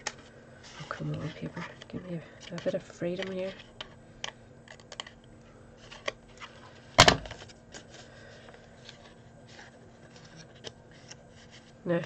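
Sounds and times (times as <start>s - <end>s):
paper card rustling: 5.8s - 11.8s.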